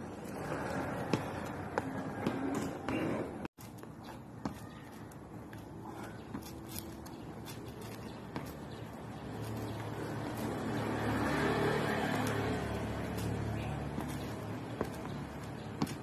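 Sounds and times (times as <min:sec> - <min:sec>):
shoes tapping on concrete: 0:00.0 - 0:16.0
vehicle passing with engine hum: 0:09.2 - 0:16.0.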